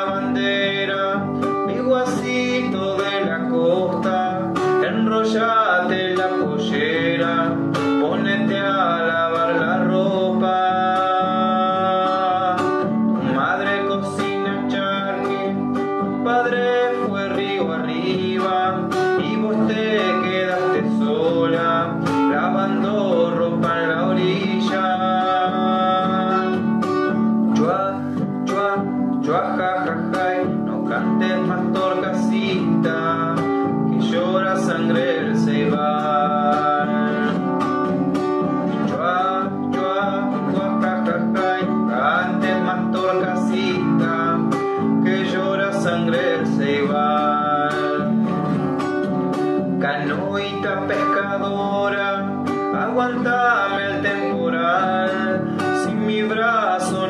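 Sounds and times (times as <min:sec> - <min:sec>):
acoustic guitar folk melody: 0:00.0 - 0:57.0.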